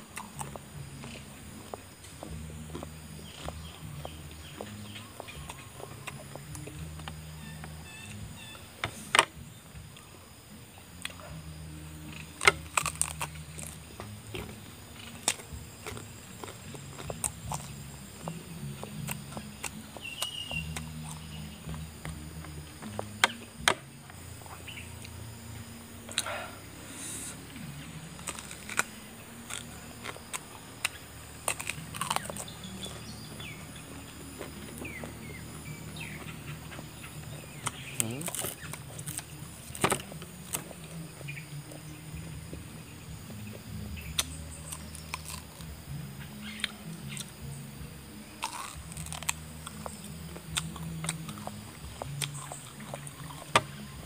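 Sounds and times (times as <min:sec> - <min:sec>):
low uneven hum: 0:00.0 - 0:54.0
crisp bite into banana: 0:48.4 - 0:49.9.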